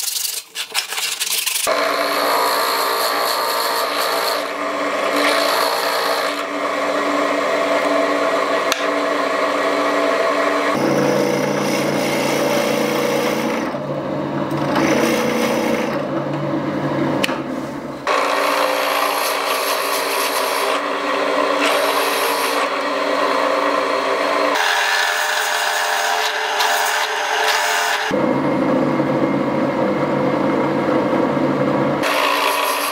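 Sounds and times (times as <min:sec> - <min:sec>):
power saw cutting plywood: 0:01.6 - 0:16.1, 0:17.2 - 0:28.2, 0:32.0 - 0:32.9.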